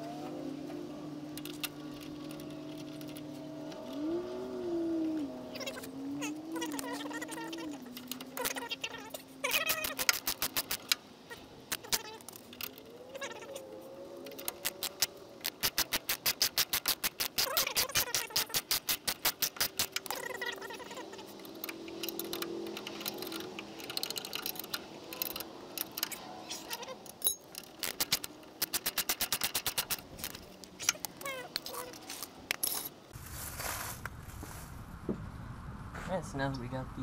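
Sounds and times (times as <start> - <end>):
hand ratchet clicking: 9.5 - 11.0, 14.2 - 32.0.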